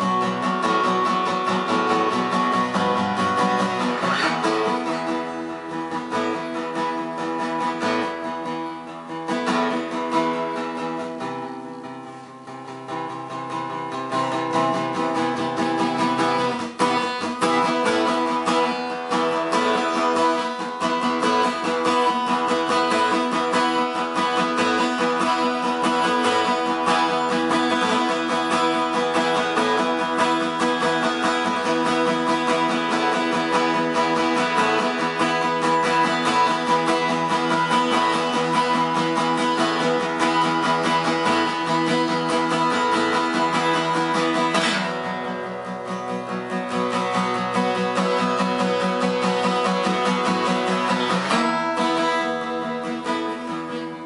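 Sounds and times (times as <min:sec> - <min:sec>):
strummed acoustic guitar music: 0:00.0 - 0:54.0.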